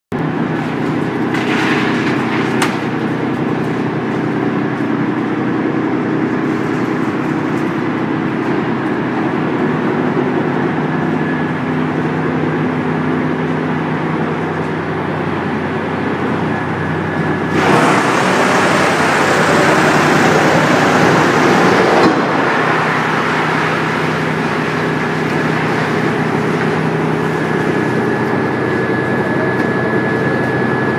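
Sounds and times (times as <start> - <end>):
wood chipper humming: 0.2 - 30.9
wood crunching in chipper: 0.4 - 5.0, 17.1 - 28.7.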